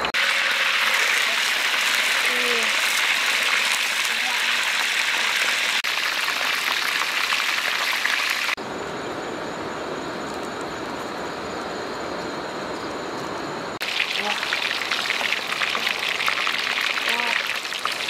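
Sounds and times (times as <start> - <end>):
chicken sizzling in hot oil: 0.0 - 8.6, 13.8 - 18.0.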